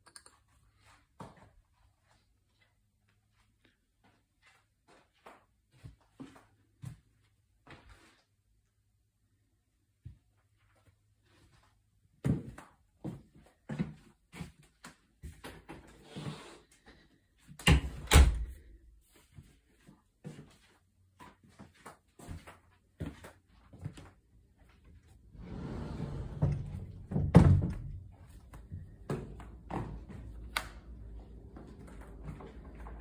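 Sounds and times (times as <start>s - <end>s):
footsteps thudding in a house: 12.1s - 15.8s, 17.5s - 25.4s, 26.1s - 33.0s.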